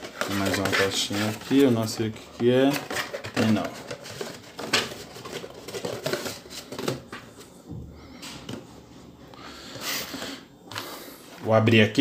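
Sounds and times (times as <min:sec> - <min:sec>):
cardboard boxes rustling: 0:00.0 - 0:07.6.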